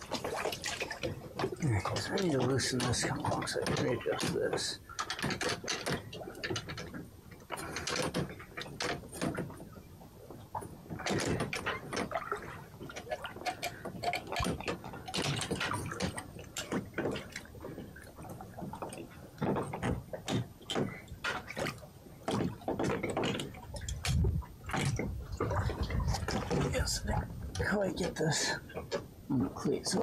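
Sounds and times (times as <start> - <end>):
water sloshing and splashing: 0.0 - 30.0
rigging gear knocking: 0.2 - 9.7.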